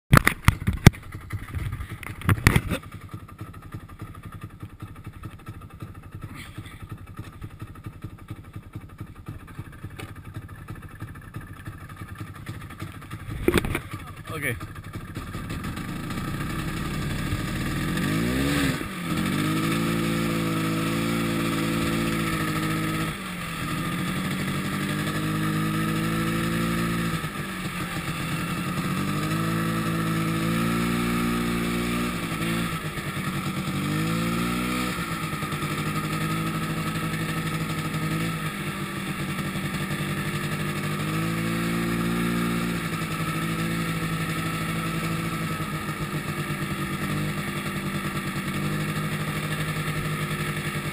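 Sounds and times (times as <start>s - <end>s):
snowmobile engine running hard: 6.2s - 7.4s, 13.2s - 50.9s.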